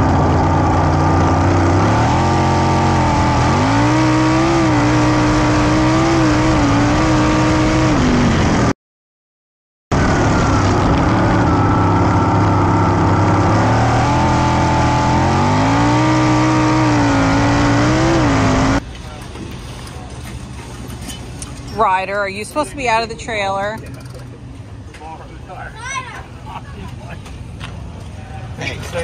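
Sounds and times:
racing car engine revving: 0:00.0 - 0:08.7, 0:10.0 - 0:18.8.

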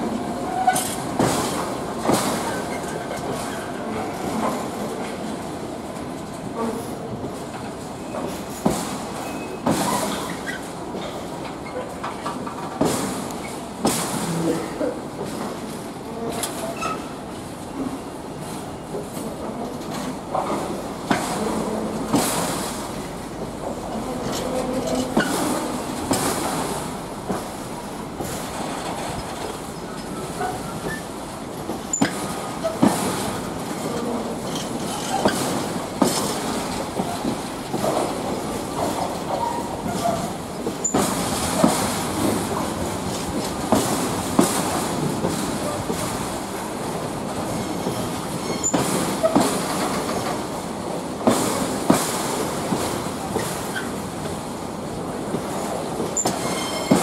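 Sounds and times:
train wheels rumbling on track: 0:00.0 - 0:57.0
wheel squeals: 0:09.2 - 0:10.7, 0:48.4 - 0:49.4, 0:56.2 - 0:57.0
wheels clicking over rail joints: 0:23.4 - 0:27.5, 0:28.2 - 0:46.2, 0:47.3 - 0:50.5.

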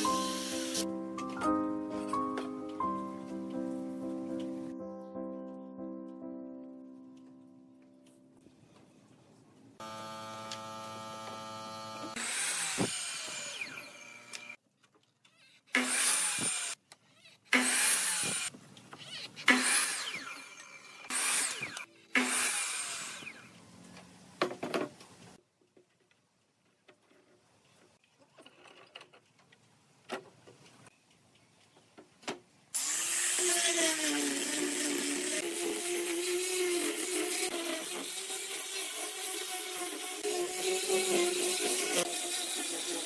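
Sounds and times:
miter saw motor whine: 0:09.8 - 0:14.6
saw cutting through wood: 0:09.8 - 0:14.6, 0:15.7 - 0:23.6, 0:32.8 - 0:43.0.

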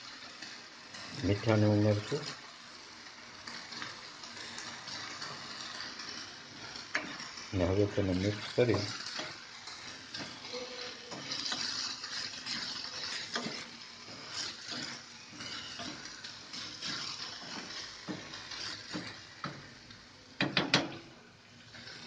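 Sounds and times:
food sizzling lightly: 0:00.0 - 0:22.0
spatula scraping frying pan: 0:03.6 - 0:19.8.

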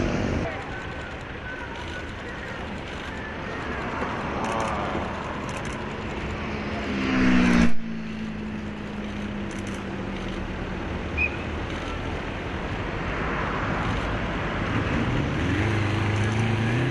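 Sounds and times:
low engine hum: 0:00.0 - 0:16.9
road traffic noise: 0:00.0 - 0:16.9
engine revving: 0:04.4 - 0:11.0, 0:13.7 - 0:16.9.

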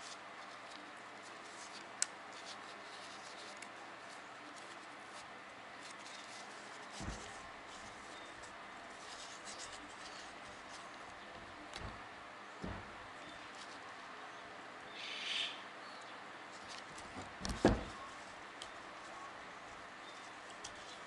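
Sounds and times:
dull thump: 0:07.0 - 0:07.4, 0:12.6 - 0:13.1, 0:17.2 - 0:18.0.

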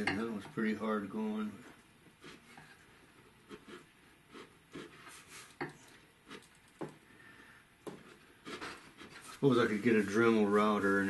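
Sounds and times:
chisel scraping wood: 0:07.9 - 0:09.5.

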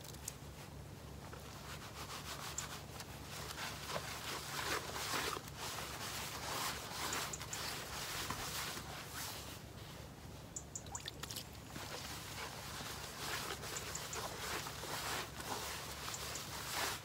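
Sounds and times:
water dripping: 0:10.6 - 0:11.5
wet rubbing in plastic bowl: 0:11.7 - 0:17.0.

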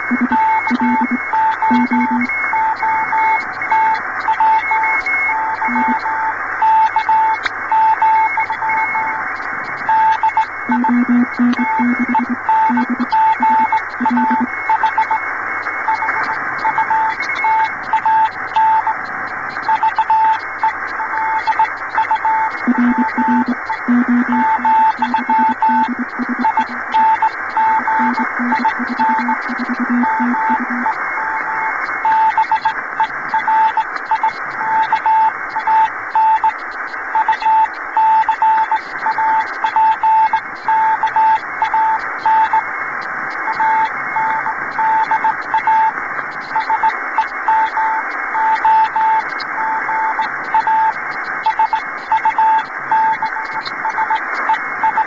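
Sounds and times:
morse code tone: 0:00.0 - 0:09.2, 0:09.8 - 0:15.2, 0:19.6 - 0:32.7, 0:46.6 - 0:54.2
radio hiss and static: 0:00.0 - 0:55.0
lower-pitched keyed tone: 0:00.1 - 0:02.2, 0:10.7 - 0:14.5, 0:22.6 - 0:30.9.

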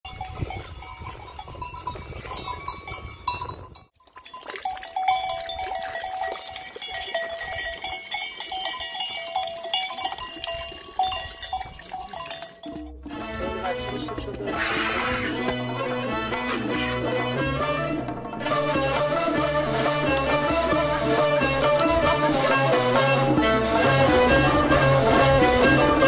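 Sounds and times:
goat bells clinking: 0:00.0 - 0:14.3.

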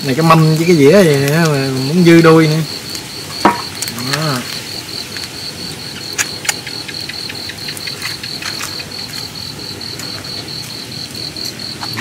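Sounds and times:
cricket chirping: 0:00.0 - 0:12.0
metal tongs clicking on grill: 0:01.0 - 0:01.6.

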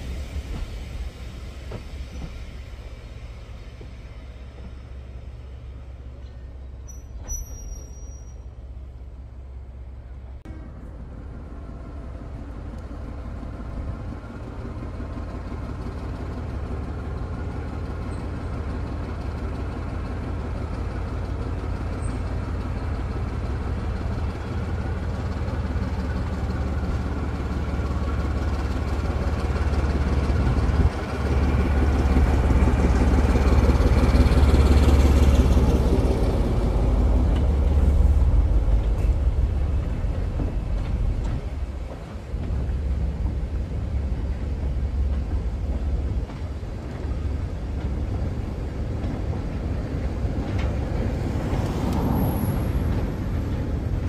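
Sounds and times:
diesel locomotive engine droning: 0:00.0 - 0:54.0.

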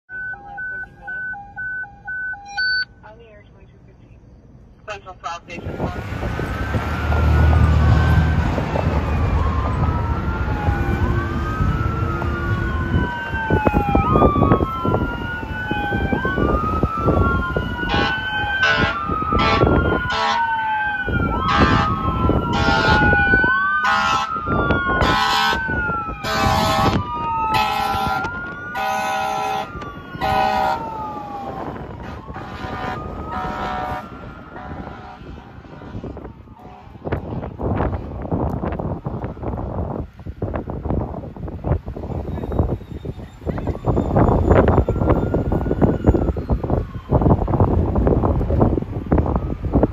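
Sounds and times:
fire engine siren wailing: 0:00.1 - 0:02.8, 0:05.5 - 0:49.9
traffic rumble: 0:00.1 - 0:49.9
air horn blasts: 0:17.8 - 0:20.5, 0:21.4 - 0:23.2, 0:23.8 - 0:24.4, 0:25.0 - 0:30.9, 0:32.0 - 0:37.0.

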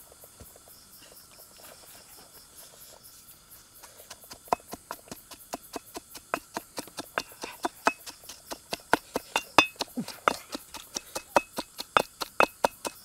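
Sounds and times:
crickets chirping: 0:00.0 - 0:13.0
pestle pounding in stone mortar: 0:04.1 - 0:13.0.

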